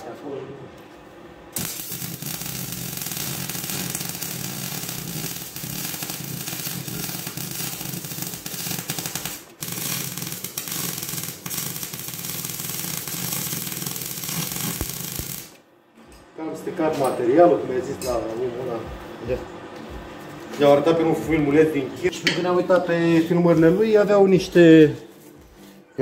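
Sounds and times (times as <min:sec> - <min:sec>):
low welder buzz: 0:00.8 - 0:15.7
arc welder crackling: 0:01.5 - 0:15.7.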